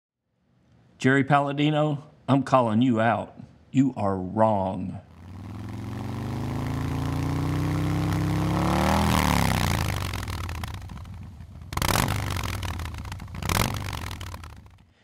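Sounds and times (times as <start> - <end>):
motorcycle revving past: 5.1 - 14.8.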